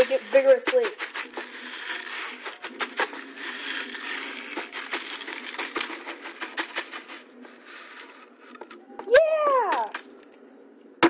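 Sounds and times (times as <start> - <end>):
feed pellets pouring into bucket: 0.0 - 8.2
plastic bag crinkling: 0.0 - 8.2.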